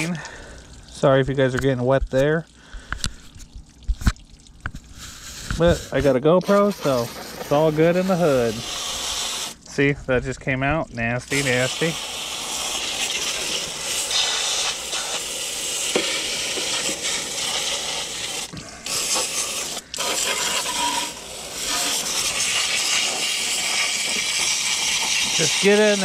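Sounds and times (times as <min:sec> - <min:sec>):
hose spraying water on metal: 0:00.0 - 0:00.2, 0:04.9 - 0:09.9, 0:11.3 - 0:26.0.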